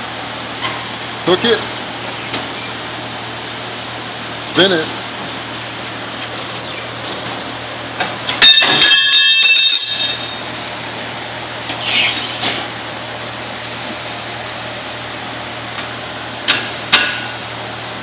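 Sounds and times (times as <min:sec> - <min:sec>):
rubber tire bead squealing: 0:06.5 - 0:07.5, 0:11.8 - 0:12.6.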